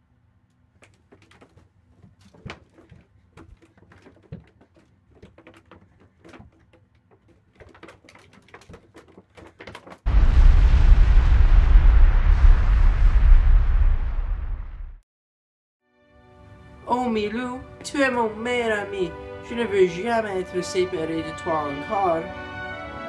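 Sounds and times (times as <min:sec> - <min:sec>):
loud explosion with deep rumble: 0:10.1 - 0:15.0.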